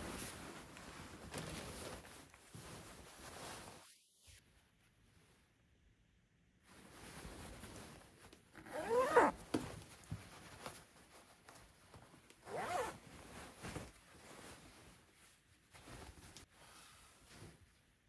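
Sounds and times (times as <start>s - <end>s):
jacket rustling: 0.0s - 3.9s, 6.7s - 16.5s
jacket zipper pulled: 8.6s - 9.4s, 12.5s - 13.0s.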